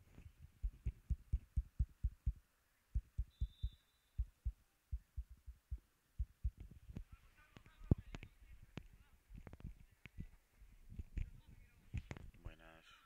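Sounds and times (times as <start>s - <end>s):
short low thumps: 0.6s - 2.4s, 3.0s - 6.7s
faint high whistle tone: 2.7s - 5.1s.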